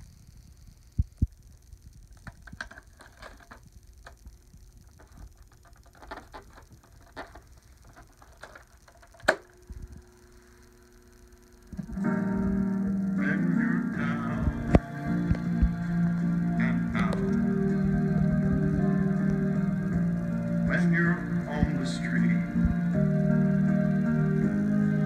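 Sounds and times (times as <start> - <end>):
music from tape: 1.0 - 25.0
plastic clicks and scrapes: 2.2 - 9.5
player low hum: 3.3 - 25.0
low thumps: 14.3 - 20.7.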